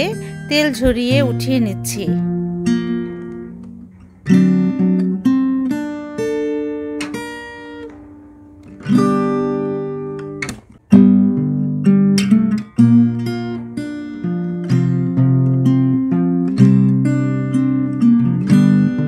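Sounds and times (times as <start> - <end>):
acoustic guitar chords: 0.0 - 19.0.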